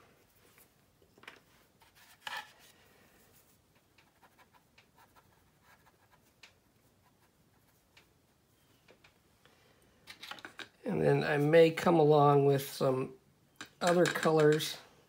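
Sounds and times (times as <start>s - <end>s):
cotton swab scratching and tapping: 3.8s - 8.1s.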